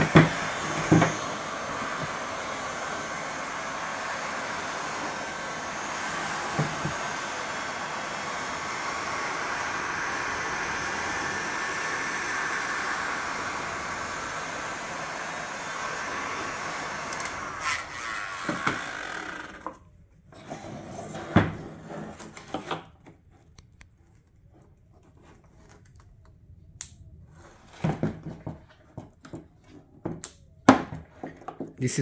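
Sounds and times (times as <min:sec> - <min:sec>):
heat gun blowing: 0:00.0 - 0:19.8.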